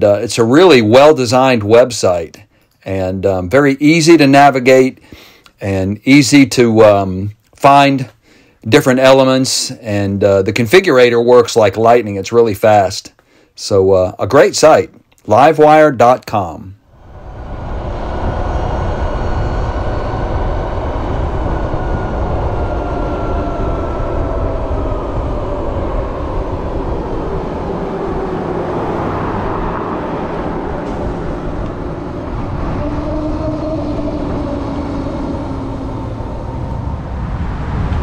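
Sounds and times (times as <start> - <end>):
electric motor whine: 16.9 - 38.0
wind rushing over microphone: 16.9 - 38.0.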